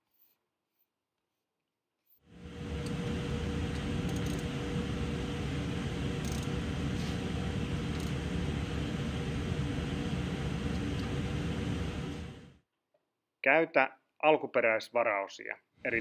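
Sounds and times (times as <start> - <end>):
mechanical fan drone: 2.3 - 12.6
wrench clicks: 4.1 - 4.4, 6.2 - 6.5.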